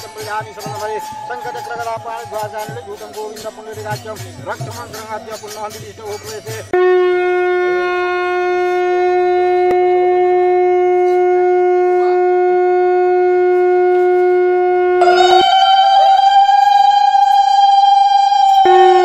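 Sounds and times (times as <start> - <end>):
conch shell blown: 6.7 - 19.0
higher rising note: 14.8 - 19.0.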